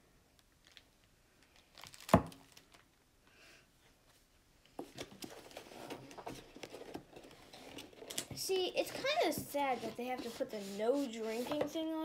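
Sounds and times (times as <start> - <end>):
plastic wrapping crinkling: 0.4 - 3.0.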